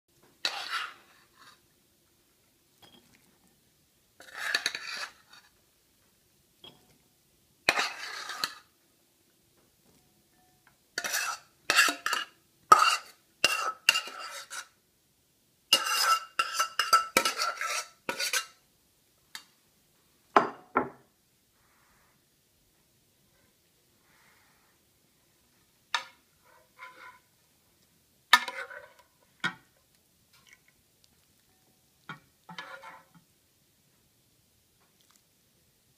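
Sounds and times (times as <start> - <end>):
utensil scraping ceramic bowls: 0.4 - 1.7, 4.2 - 5.5, 7.7 - 8.7, 11.0 - 14.8, 15.7 - 18.6, 26.0 - 27.3, 28.4 - 29.6, 32.5 - 33.2.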